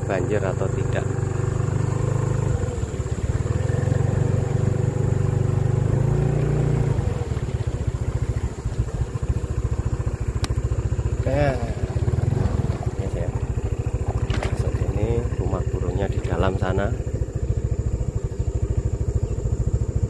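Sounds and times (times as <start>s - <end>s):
motorcycle engine running: 0.0s - 20.0s.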